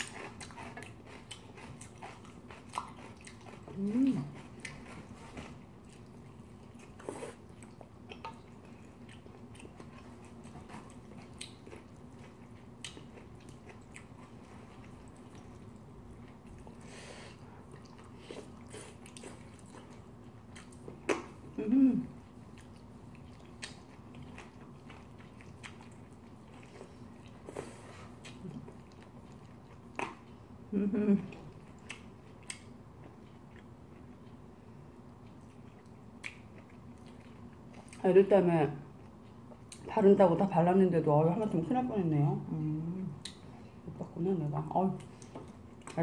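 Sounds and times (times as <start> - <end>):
chewing food: 0.0 - 40.1, 43.1 - 46.0
person humming: 3.8 - 4.3, 21.6 - 22.1.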